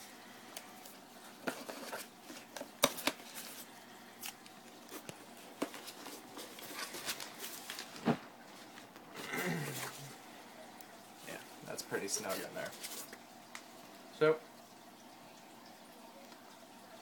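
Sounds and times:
newspaper rustling: 0.8 - 10.1, 12.0 - 13.2.

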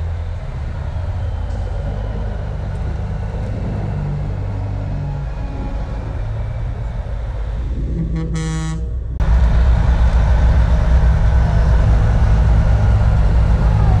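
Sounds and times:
diesel trucks rumbling: 0.0 - 14.0
truck air horn blast: 8.0 - 9.0.

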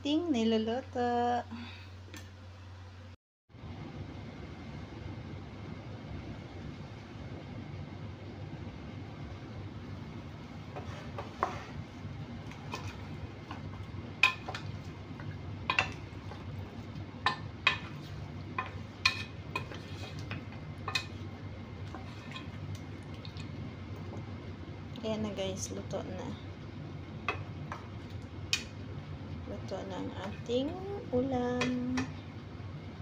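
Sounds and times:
steady low hum: 0.0 - 33.0
wooden spoon knocking pot: 12.7 - 21.2.

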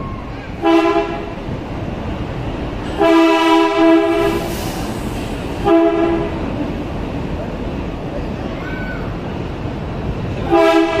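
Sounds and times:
train rumbling: 0.0 - 11.0
train horn blasts: 0.6 - 1.4, 2.9 - 4.5, 5.6 - 6.4, 10.4 - 11.0.

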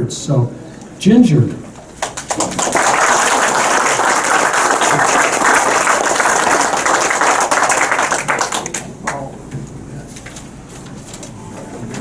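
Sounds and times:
audience applauding: 2.0 - 9.3.

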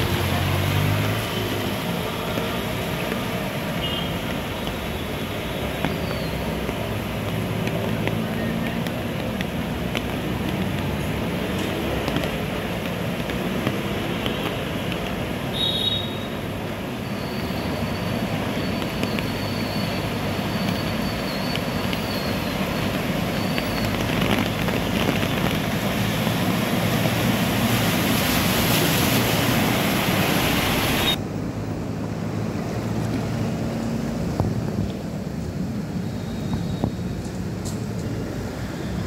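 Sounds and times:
bus engine: 0.0 - 3.7
rushing floodwater: 0.0 - 39.0.

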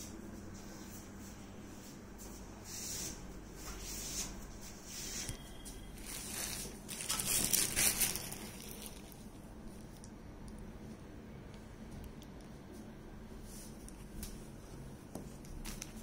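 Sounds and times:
rustling handling noises: 3.6 - 10.1.

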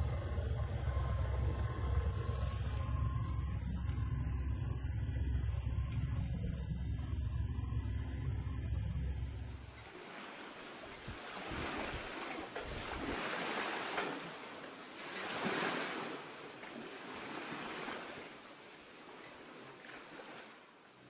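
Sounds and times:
wind buffeting microphone: 0.0 - 9.7
wind and water rushing: 0.0 - 21.0.

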